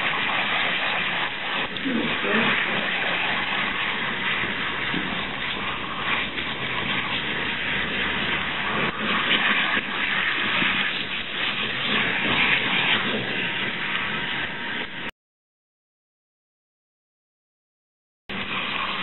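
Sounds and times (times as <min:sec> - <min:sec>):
water splashing into basin: 0:00.0 - 0:14.4
shower spray running: 0:00.0 - 0:15.1, 0:18.3 - 0:19.0.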